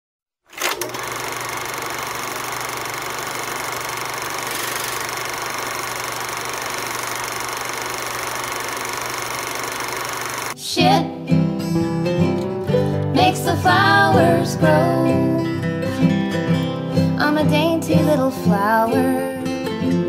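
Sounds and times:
machine droning: 0.6s - 10.6s.

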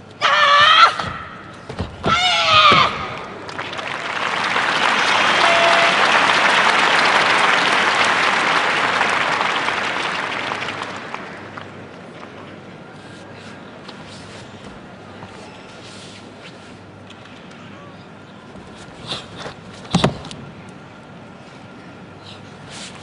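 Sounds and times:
crowd applauding: 3.1s - 12.0s.

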